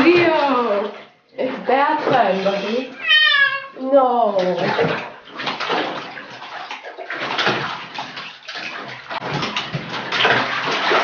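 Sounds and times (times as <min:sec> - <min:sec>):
water splashing in a bath: 0:00.0 - 0:11.0.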